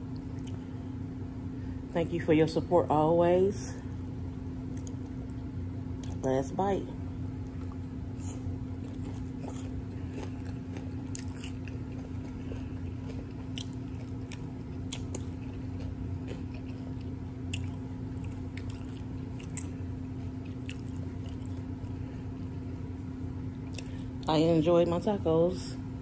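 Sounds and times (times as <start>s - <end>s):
chewing crunchy food: 0.1s - 0.8s, 3.9s - 6.2s, 7.1s - 22.9s, 23.5s - 24.2s.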